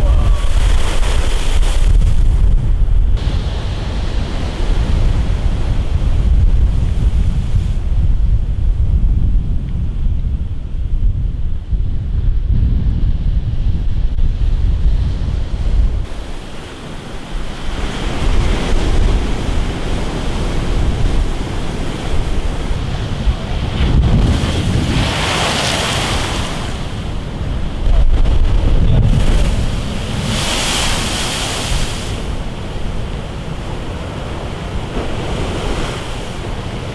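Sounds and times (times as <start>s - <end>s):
sea surf breaking: 0.0s - 7.9s, 16.0s - 36.9s
wind buffeting microphone: 0.0s - 36.9s.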